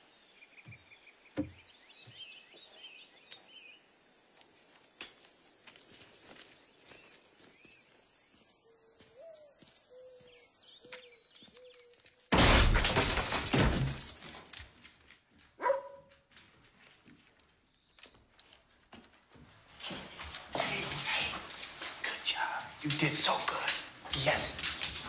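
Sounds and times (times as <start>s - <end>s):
crickets chirping: 0.0s - 12.3s, 17.4s - 25.0s
dog barking faintly: 15.6s - 16.1s.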